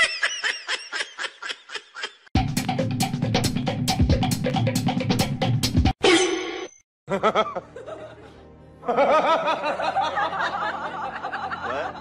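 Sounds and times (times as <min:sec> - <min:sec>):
background music: 0:07.1 - 0:12.0.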